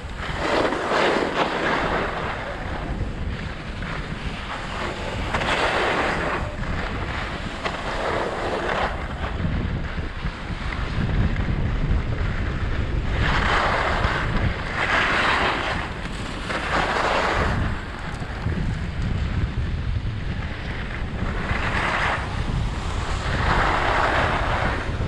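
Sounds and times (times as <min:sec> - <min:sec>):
skis hissing over snow: 0:00.0 - 0:09.4, 0:13.0 - 0:19.0, 0:21.2 - 0:25.0
wind rumble on microphone: 0:00.0 - 0:25.0.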